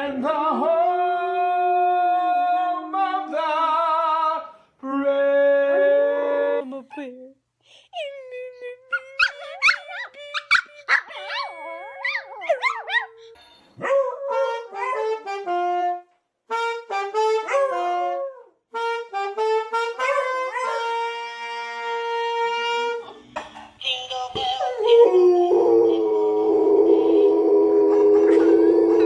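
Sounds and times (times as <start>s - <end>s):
saxophone playing held notes: 14.5s - 23.1s.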